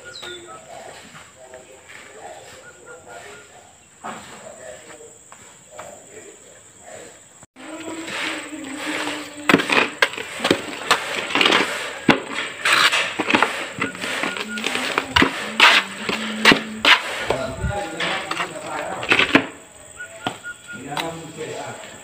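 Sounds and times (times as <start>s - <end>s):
blocks scraping: 7.6s - 21.1s
concrete blocks knocking: 7.8s - 21.1s.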